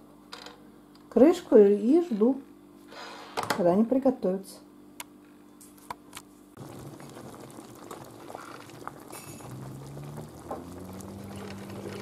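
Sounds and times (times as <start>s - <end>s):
sauce bubbling at a boil: 6.6s - 12.0s.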